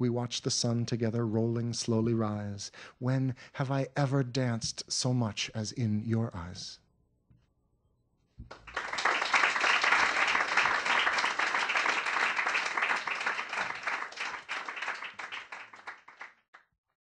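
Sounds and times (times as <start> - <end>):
audience applause: 8.5 - 16.4.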